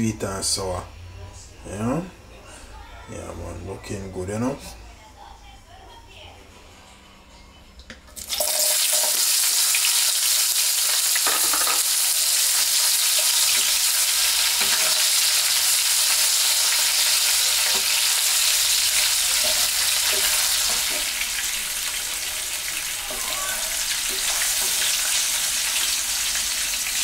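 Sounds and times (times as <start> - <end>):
vegetables sizzling in hot oil: 8.2 - 27.0
spatula scraping and knocking pan: 14.6 - 15.2, 17.6 - 21.5.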